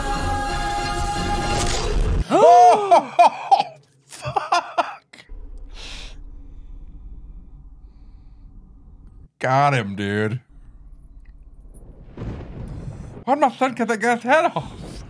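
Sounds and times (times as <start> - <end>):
choral chanting music: 0.0 - 2.2
sharp hits: 5.3 - 9.3
faint low hum: 5.3 - 12.1.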